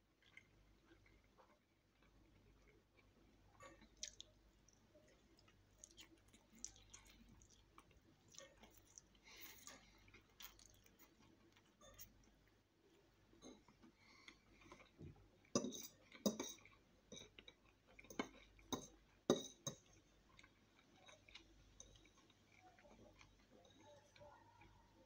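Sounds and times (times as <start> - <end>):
fork clinking on a plate: 15.6 - 17.3, 18.1 - 19.8.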